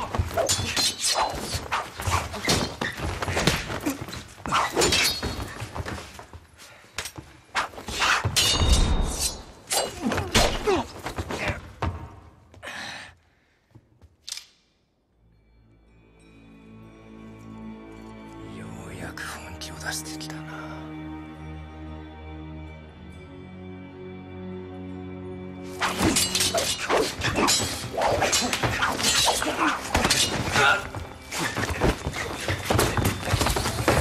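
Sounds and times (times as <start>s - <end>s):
steel blades clashing: 8.4s - 10.0s, 25.8s - 30.9s.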